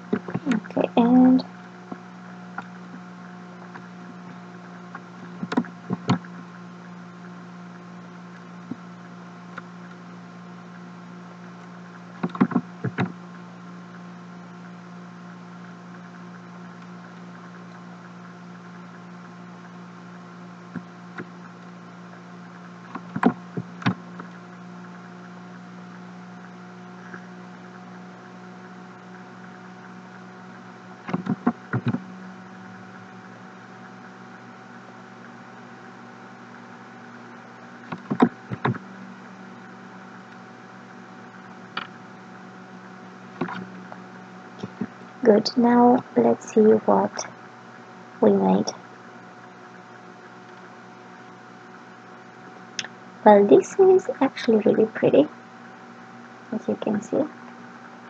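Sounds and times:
electrical hum: 0.0 - 58.0.

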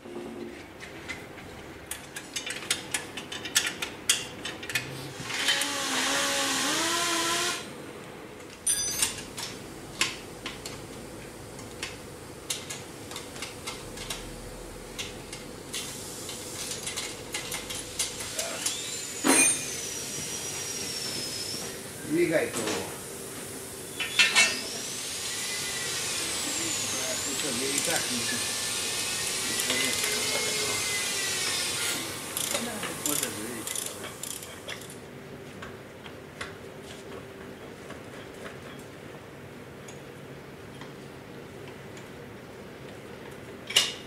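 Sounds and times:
faint steady hum: 6.6 - 29.6
metal tools clinking: 8.6 - 9.3
hiss with wavering squeal: 18.2 - 22.2, 23.1 - 32.4.

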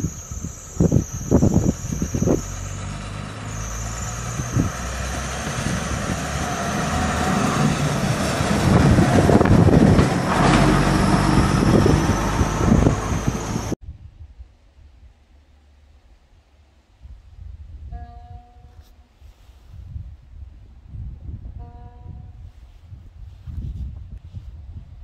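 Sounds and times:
diesel railbus passing: 0.0 - 13.8.

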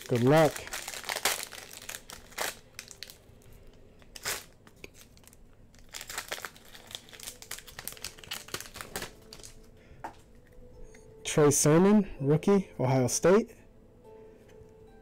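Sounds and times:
foil wrapper crinkling and tearing: 0.0 - 9.7.

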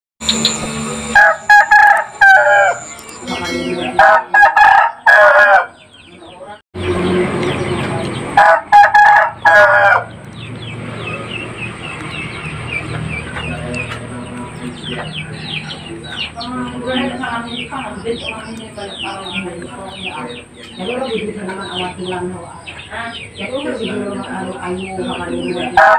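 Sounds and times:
bird chirping: 0.2 - 4.1, 4.8 - 8.4, 9.4 - 25.8
rooster crowing: 0.7 - 5.8, 8.4 - 10.2.

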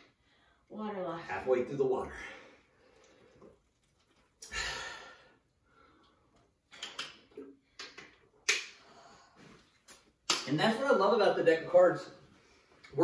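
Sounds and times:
heavy breath out: 4.4 - 6.1.

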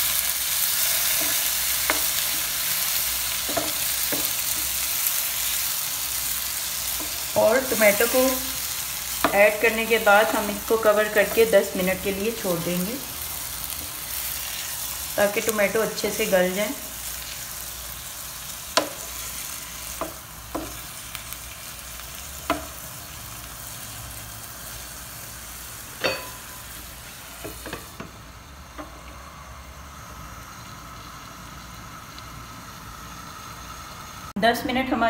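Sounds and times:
tomatoes sizzling in oil: 0.0 - 35.0
wooden spoon knocking on pan: 3.4 - 4.6, 22.4 - 22.8.

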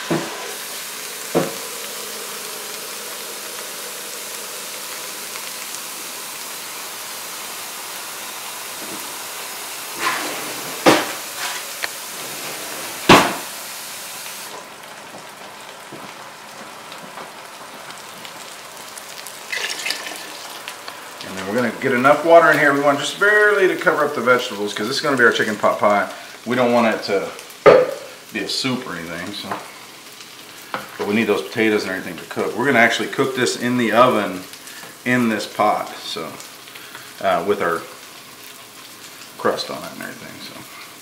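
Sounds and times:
food sizzling in a frying pan: 0.0 - 41.0
cookware knocks: 27.7 - 28.0.

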